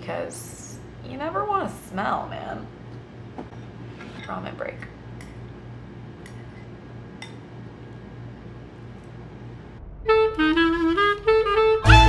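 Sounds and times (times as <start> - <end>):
jazzy saxophone music: 10.0 - 12.0.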